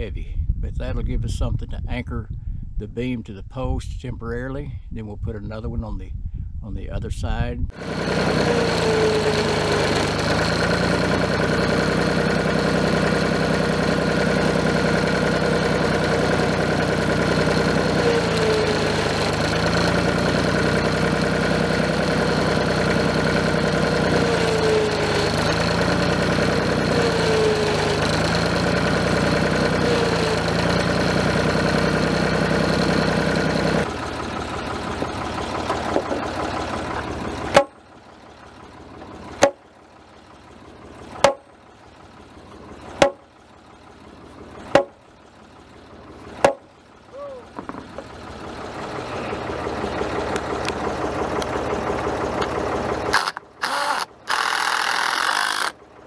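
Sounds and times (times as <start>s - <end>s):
tractor engine running: 7.7s - 56.0s
sharp knocks: 37.5s - 37.8s, 39.4s - 39.6s, 41.2s - 41.4s, 43.0s - 43.2s, 44.7s - 45.0s, 46.4s - 46.6s
loader hydraulics straining: 53.1s - 55.8s.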